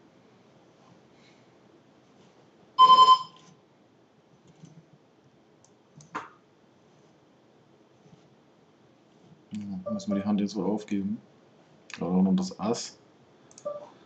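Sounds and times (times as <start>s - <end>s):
quick alert beeps: 2.8s - 3.3s.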